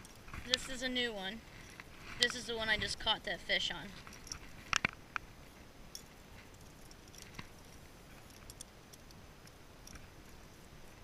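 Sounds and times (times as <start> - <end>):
metal fishing lures clicking: 8.2 - 10.0.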